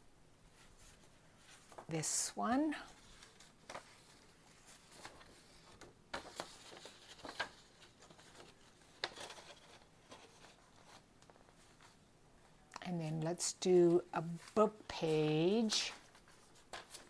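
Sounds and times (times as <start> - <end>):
paper rustling: 0.5 - 12.0, 13.9 - 17.0.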